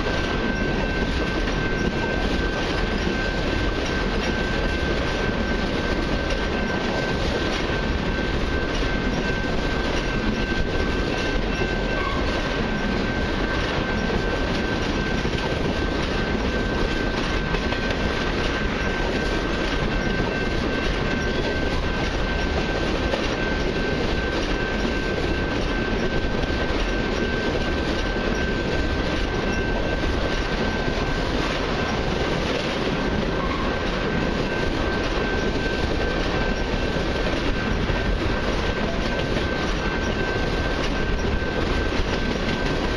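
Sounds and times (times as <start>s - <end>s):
train wheels clattering on rails: 0.0s - 42.9s.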